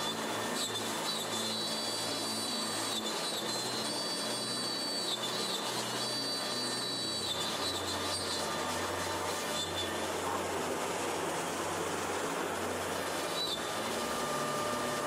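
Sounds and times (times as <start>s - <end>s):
router spindle whining: 0.0s - 15.0s.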